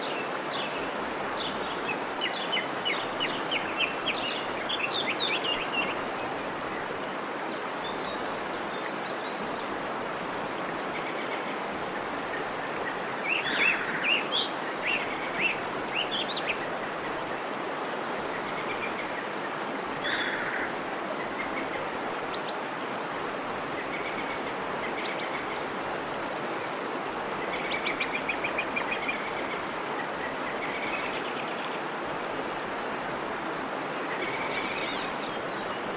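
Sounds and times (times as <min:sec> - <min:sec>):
birds singing: 0:00.0 - 0:07.2, 0:07.8 - 0:22.6, 0:33.2 - 0:35.9
waterfall rushing: 0:00.0 - 0:35.9.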